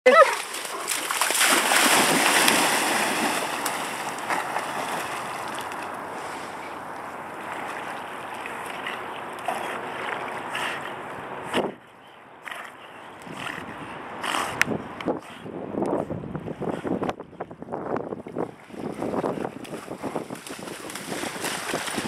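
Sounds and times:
rushing water: 0.1 - 11.4, 18.8 - 22.0
wind on microphone: 13.2 - 22.0.

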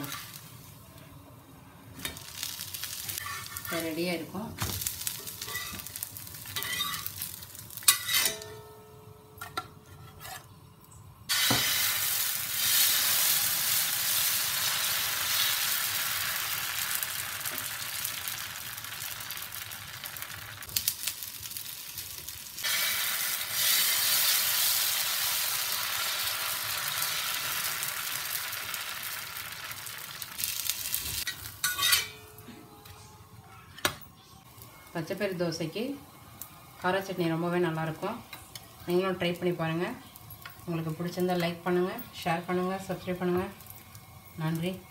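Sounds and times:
batter sizzling on a hot pan: 0.0 - 0.8, 1.9 - 8.4, 11.3 - 32.2, 34.4 - 44.9
metal spatula scraping a pan: 3.0 - 3.8, 5.3 - 5.9, 6.5 - 7.2, 7.8 - 8.5, 9.8 - 10.6.

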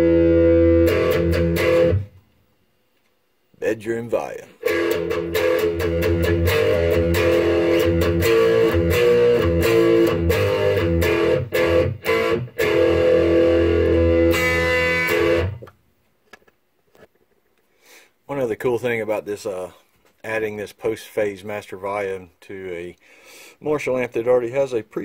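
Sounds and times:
electric guitar chords and notes: 0.0 - 2.3, 4.5 - 15.8.

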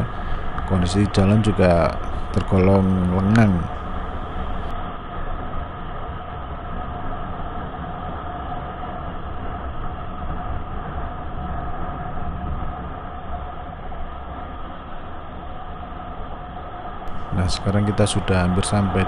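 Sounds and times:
wind rush: 0.0 - 16.0.

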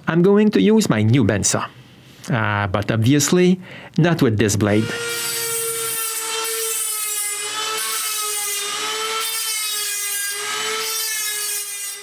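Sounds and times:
rotary tool grinding steel: 4.7 - 12.0.

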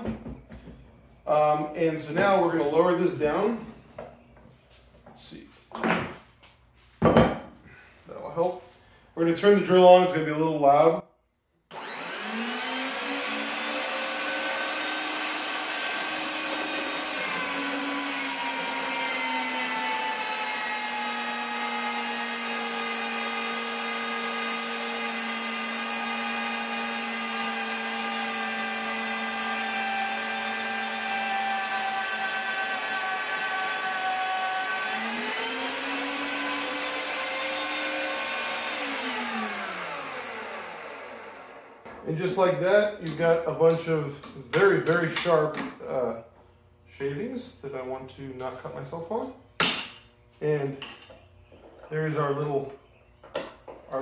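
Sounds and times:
magnetic drill motor whining: 11.7 - 19.6.

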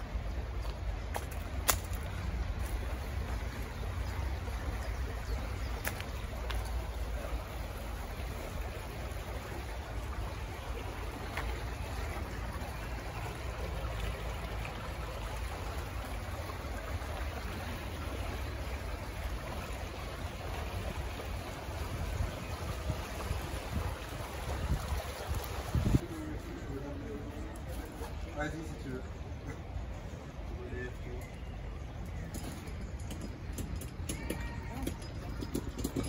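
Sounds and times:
fountain water splashing: 0.0 - 30.6.

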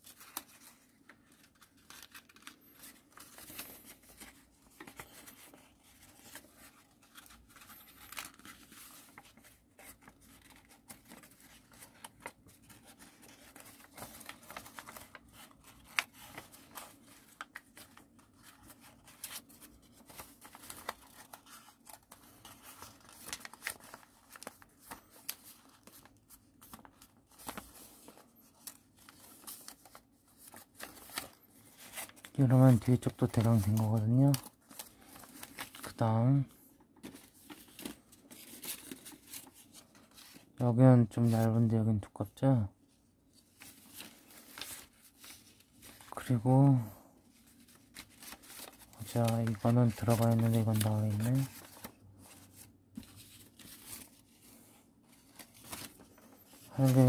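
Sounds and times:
paper rustling and crackling: 0.0 - 40.6, 42.8 - 57.0.

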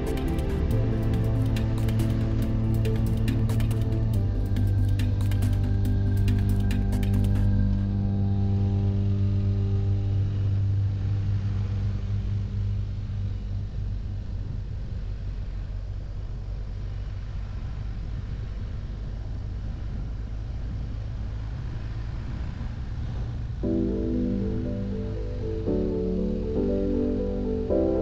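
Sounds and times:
motorcycle engine rumbling: 0.0 - 21.3
road noise: 0.0 - 28.0
wind noise: 0.0 - 28.0.

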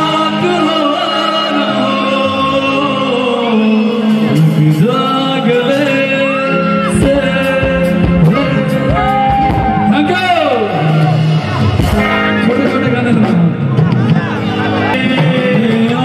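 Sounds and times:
man singing: 0.0 - 11.3, 14.6 - 16.0
live band music: 0.0 - 16.0.

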